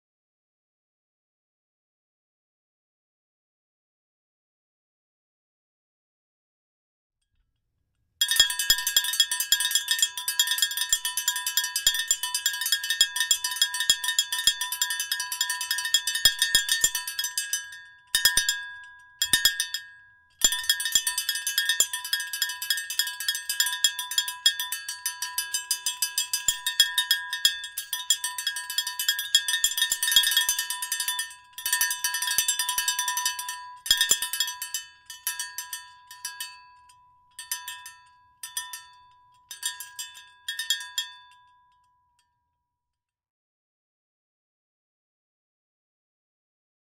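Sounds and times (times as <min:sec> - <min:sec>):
cowbell clanking: 0:08.2 - 0:41.8.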